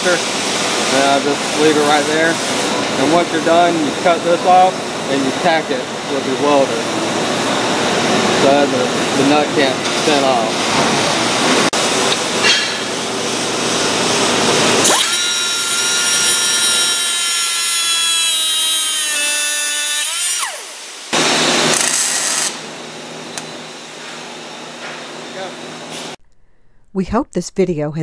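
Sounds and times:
angle grinder cutting steel: 14.8 - 22.6.

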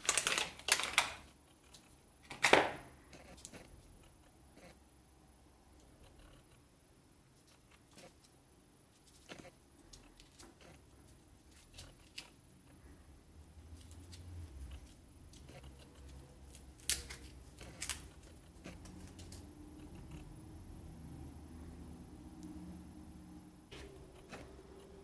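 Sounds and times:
small clicks and scratches: 0.0 - 4.8, 5.8 - 6.6, 7.4 - 12.9, 13.7 - 20.4, 23.7 - 25.0.

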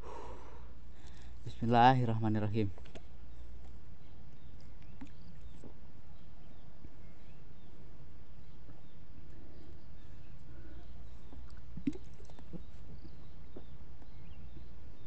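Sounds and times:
man gulping water: 11.3 - 13.0.

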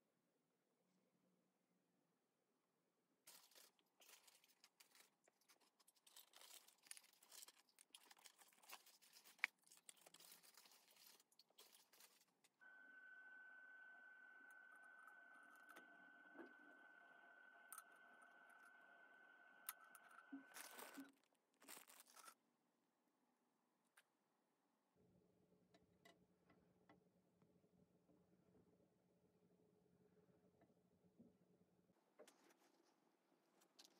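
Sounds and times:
small parts rustling and clicking: 3.3 - 12.6, 20.5 - 22.4.

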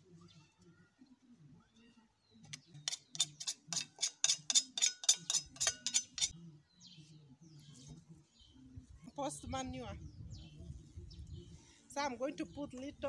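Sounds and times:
wooden stick knocking on metal blade: 2.9 - 6.3.

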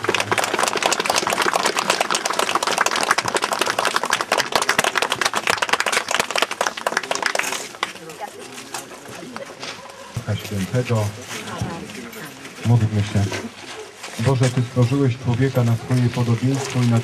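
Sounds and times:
crowd applauding: 0.0 - 8.2.

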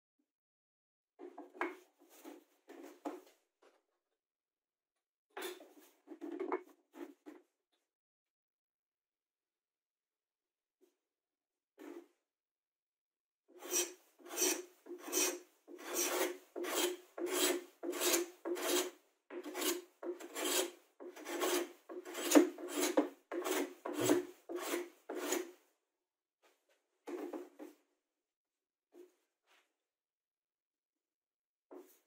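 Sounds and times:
hand plane cutting wood: 13.6 - 25.6.

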